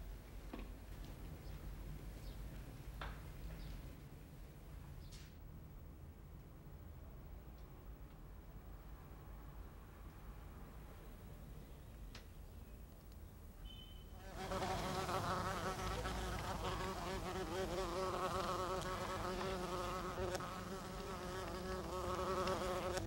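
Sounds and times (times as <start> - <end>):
bee buzzing in flight: 14.2 - 23.0.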